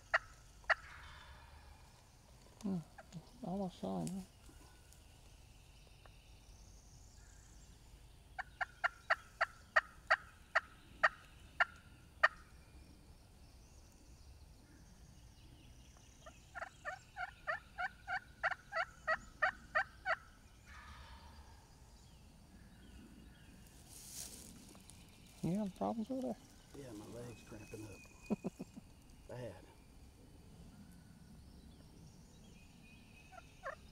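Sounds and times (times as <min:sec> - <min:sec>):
turkey yelping: 0:16.6 - 0:21.2, 0:33.3 - 0:33.8.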